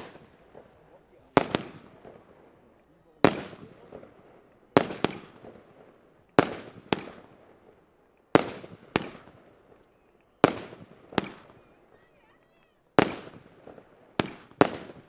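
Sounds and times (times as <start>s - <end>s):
fireworks shells bursting: 0.0s - 2.4s
fireworks shots banging: 0.0s - 11.8s, 12.9s - 15.0s.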